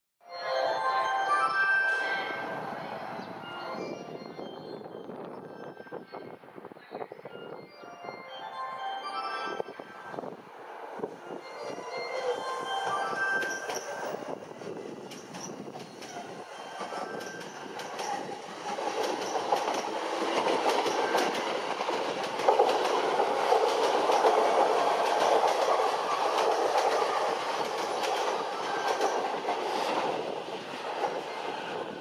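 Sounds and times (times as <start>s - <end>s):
train wheels rumbling on rail: 10.2s - 32.0s
wheels clicking over rail joints: 15.0s - 31.3s.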